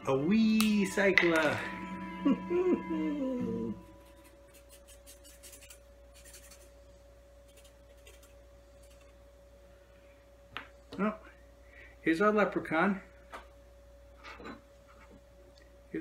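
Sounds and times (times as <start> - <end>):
thin steady hum: 0.0 - 16.0
marker rubbing on paper: 4.0 - 6.8, 7.5 - 9.1.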